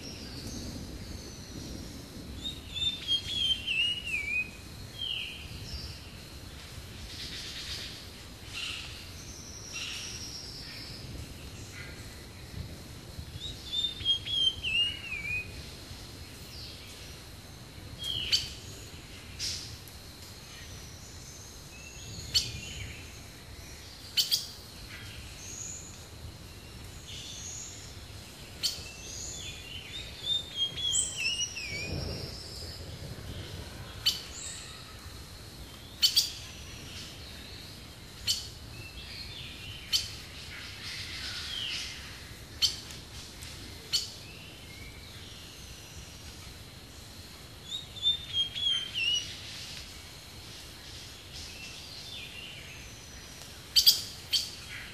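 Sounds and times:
faint outdoor background: 0.0 - 54.9
birds twittering: 26.8 - 35.0.

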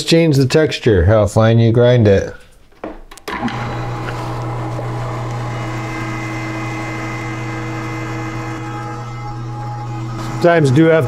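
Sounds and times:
electric meat grinder humming: 3.3 - 11.0.

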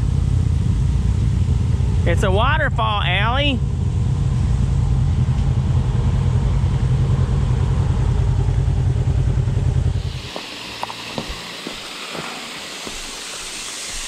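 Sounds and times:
engine idling low rumble: 0.0 - 14.0
small waterfall rushing: 10.0 - 14.0.

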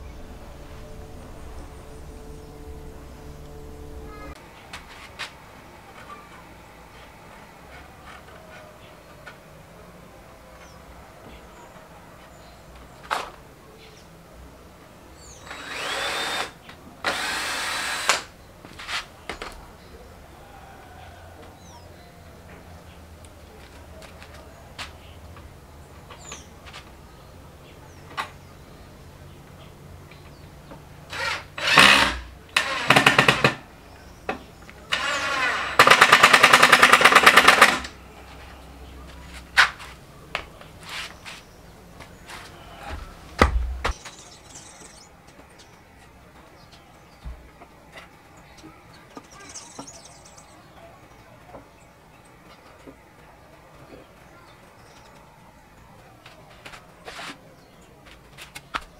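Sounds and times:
cordless drill whirring: 15.4 - 18.3, 31.1 - 33.6, 34.9 - 37.9.

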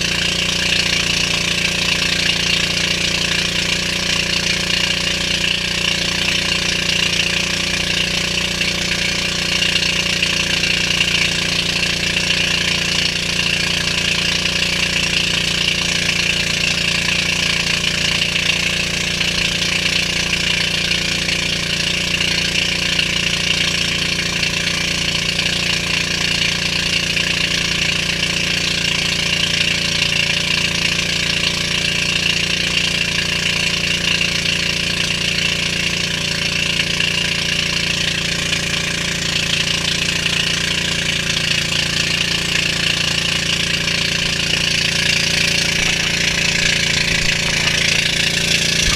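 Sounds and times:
boat engine running: 0.0 - 48.9.

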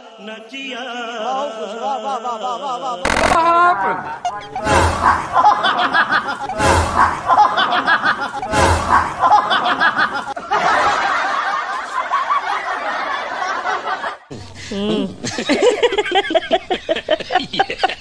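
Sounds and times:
people laughing hard: 3.7 - 18.0.

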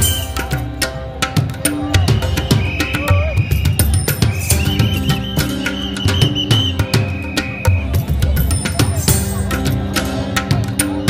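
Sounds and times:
music with steady drum beat: 0.0 - 11.0.

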